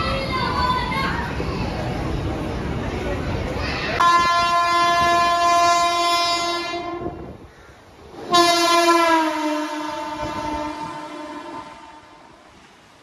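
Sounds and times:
train horn blasts: 4.0s - 7.3s, 8.3s - 12.4s.

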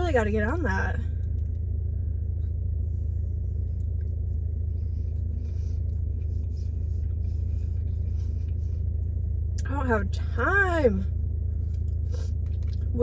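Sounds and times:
car engine idling hum: 0.0s - 13.0s
faint chewing: 3.6s - 9.6s, 11.6s - 13.0s.

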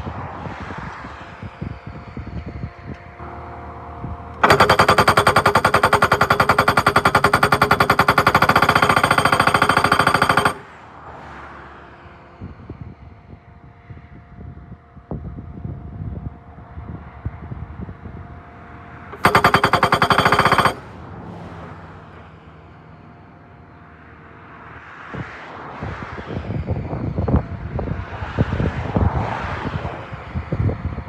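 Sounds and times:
loader engine and hydraulics: 1.3s - 12.4s, 19.0s - 24.6s
post driver hammering wooden post: 4.4s - 10.7s, 19.1s - 20.8s.

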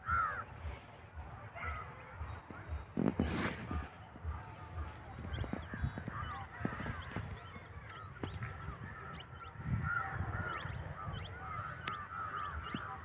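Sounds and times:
birds chirping in chorus: 0.0s - 13.0s.

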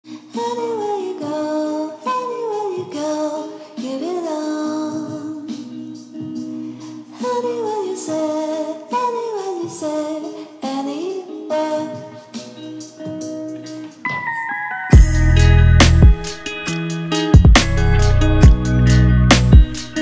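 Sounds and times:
slow sliding melody: 13.8s - 19.3s
low held tone: 14.1s - 16.5s.

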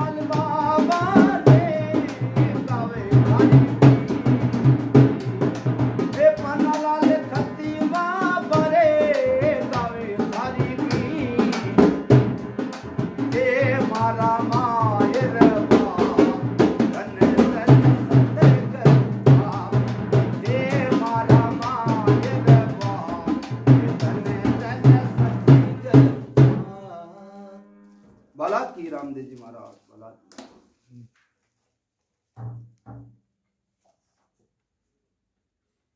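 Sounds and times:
hand drum beat: 0.0s - 26.7s
man singing: 0.0s - 28.6s.

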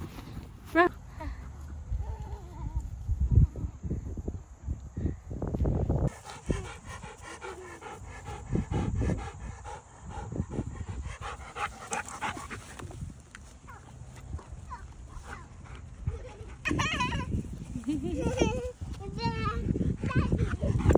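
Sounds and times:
dog panting: 6.1s - 13.0s, 15.0s - 16.7s, 19.6s - 20.9s.

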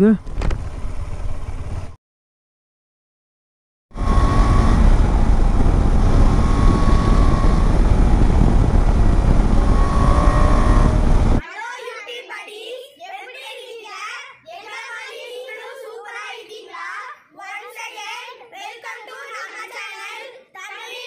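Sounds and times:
motorcycle road and wind noise: 0.0s - 2.0s, 4.0s - 11.4s.

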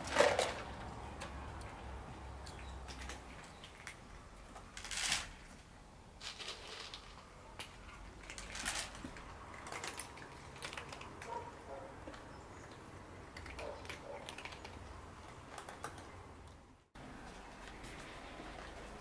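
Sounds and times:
cat crunching dry food: 2.5s - 5.6s, 6.2s - 16.1s.

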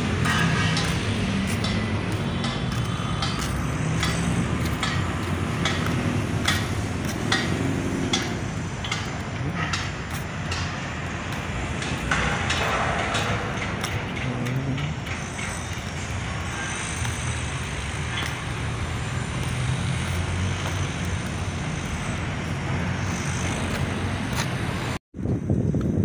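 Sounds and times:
sharp knocks: 0.0s - 16.4s
outdoor background noise: 0.0s - 26.0s.

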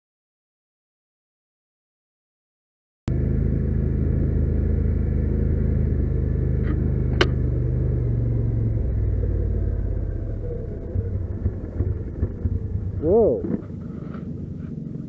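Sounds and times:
atv engine running: 3.1s - 15.0s.

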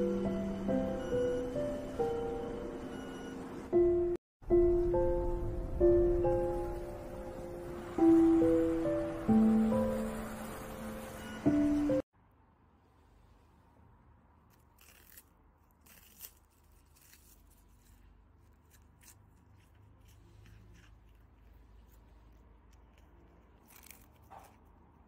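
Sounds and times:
cat crunching a hard treat: 15.8s - 24.9s.

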